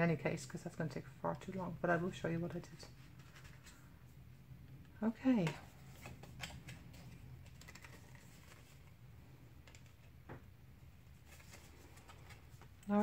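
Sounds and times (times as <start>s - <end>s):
card stock being folded: 5.6s - 9.0s, 11.1s - 13.0s.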